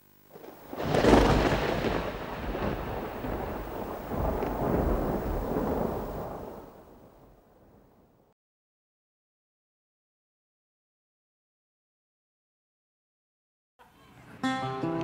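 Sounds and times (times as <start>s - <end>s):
rolling thunder rumble: 0.4s - 8.3s.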